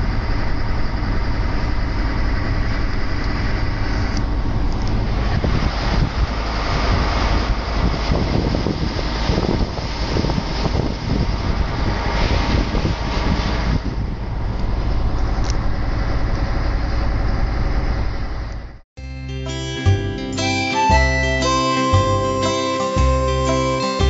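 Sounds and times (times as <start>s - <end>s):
road noise: 0.0s - 18.8s
truck diesel engine running: 0.0s - 24.0s.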